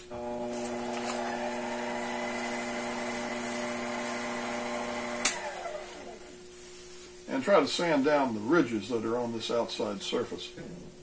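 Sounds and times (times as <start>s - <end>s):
lathe motor humming: 0.1s - 6.4s
switch click: 5.2s - 5.5s.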